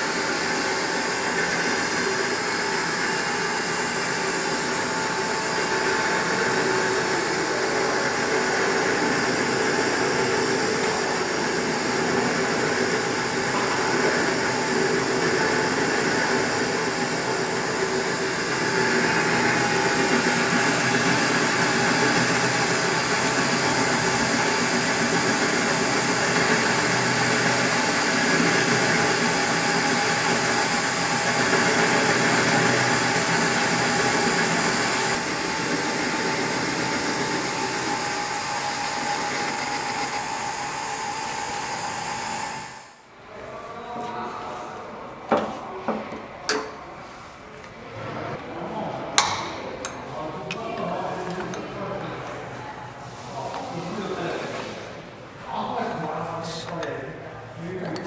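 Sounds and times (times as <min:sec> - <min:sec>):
lathe motor drone: 0:00.0 - 0:43.0.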